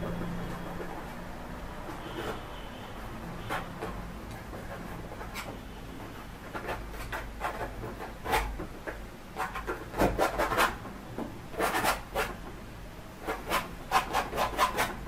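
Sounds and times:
palette knife scraping paint on canvas: 1.8s - 2.8s, 3.4s - 8.6s, 9.4s - 10.8s, 11.6s - 12.4s, 13.2s - 15.0s.

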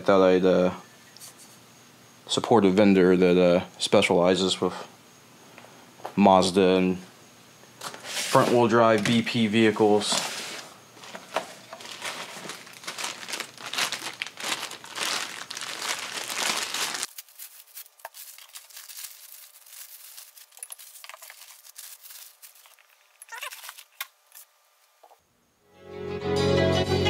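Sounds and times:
plastic bags crinkling: 11.0s - 24.1s.

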